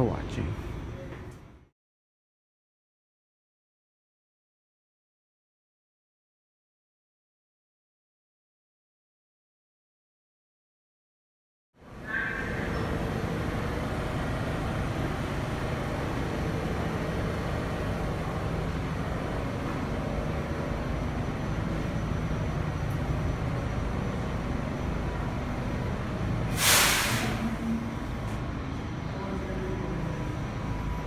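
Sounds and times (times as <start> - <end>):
subway train equipment hum: 0.0 - 1.7, 11.8 - 31.0
train air hiss: 26.4 - 27.6.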